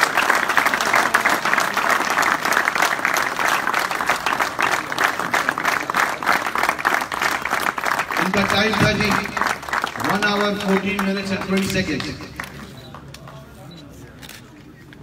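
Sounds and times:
crowd applauding: 0:00.0 - 0:13.5.

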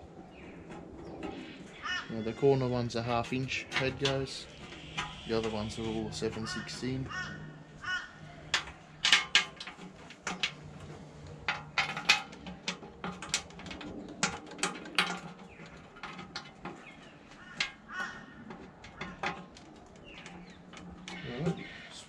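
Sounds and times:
birds calling: 0:00.0 - 0:22.0
metal tools clinking on steel: 0:02.2 - 0:07.3.

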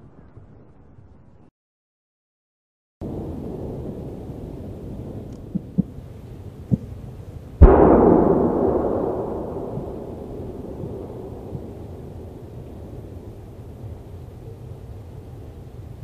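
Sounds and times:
fireworks rumble: 0:03.0 - 0:16.0
loud firework boom: 0:07.6 - 0:13.7.

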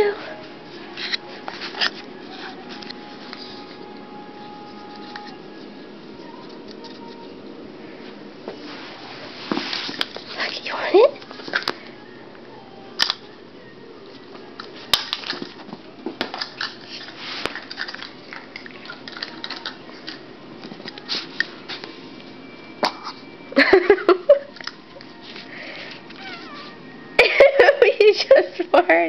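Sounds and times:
dog scuffling on carpet: 0:08.5 - 0:10.4.

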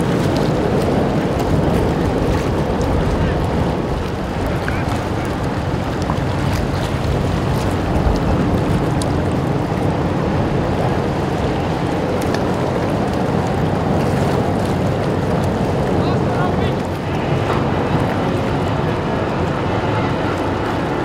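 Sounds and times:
ferry engines rumbling: 0:00.0 - 0:21.0
propeller wash: 0:00.0 - 0:21.0
wind noise on microphone: 0:00.0 - 0:21.0.

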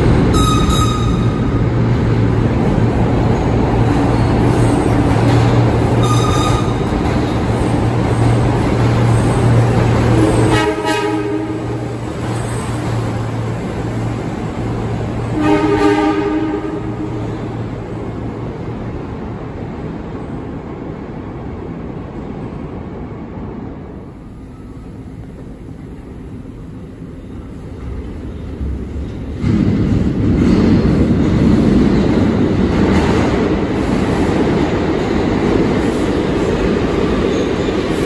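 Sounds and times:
train engine drone: 0:00.0 - 0:38.0
wheels rumbling on rails: 0:00.0 - 0:38.0
train horn blast: 0:00.3 - 0:01.4, 0:06.0 - 0:06.8, 0:10.1 - 0:11.9, 0:15.3 - 0:17.4.

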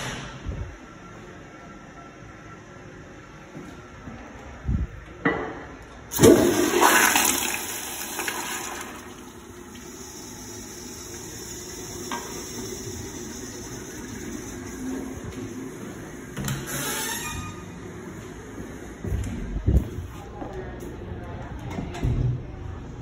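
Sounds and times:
water running as tank refills: 0:06.1 - 0:17.6
toilet flushing: 0:06.1 - 0:17.7.

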